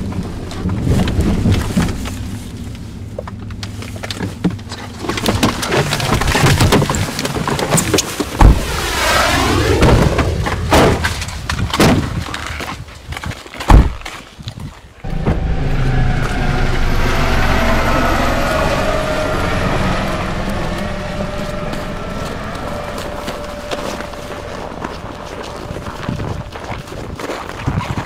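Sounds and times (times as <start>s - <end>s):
noisy rumble with wavering tones: 0.0s - 6.4s, 15.0s - 27.2s.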